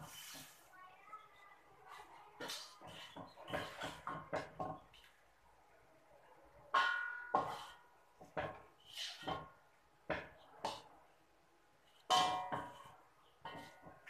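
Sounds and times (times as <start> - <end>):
spatula scraping metal wok: 0.0 - 0.6, 1.9 - 5.0, 7.3 - 9.6.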